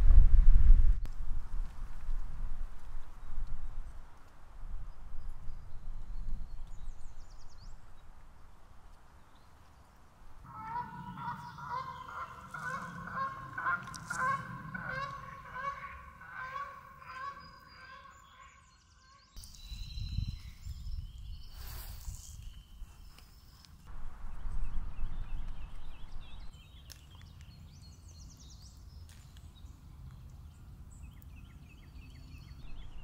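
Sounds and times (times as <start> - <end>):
low wind-like rumble: 0.0 - 17.0, 19.5 - 26.8, 29.6 - 33.0
geese honking: 10.5 - 19.4.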